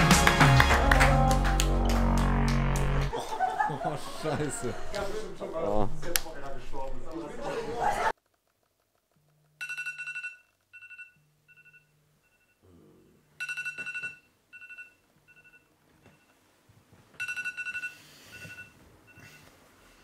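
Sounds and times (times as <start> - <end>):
phone vibrating on surface: 1.8 - 3.1
phone alarm beeping: 13.4 - 16.3, 17.2 - 19.5.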